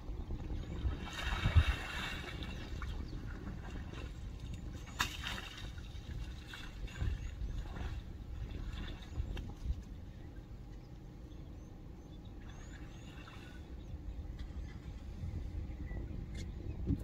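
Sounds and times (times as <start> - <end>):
steady low rumble: 0.0 - 17.0
faint bird chirps: 10.2 - 16.8.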